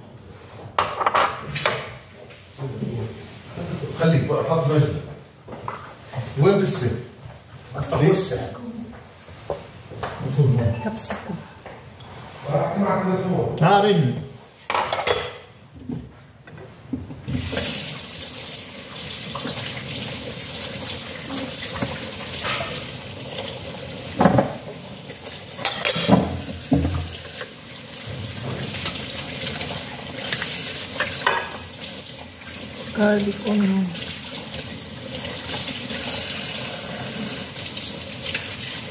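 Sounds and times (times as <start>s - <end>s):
water running from tap: 17.3s - 38.9s.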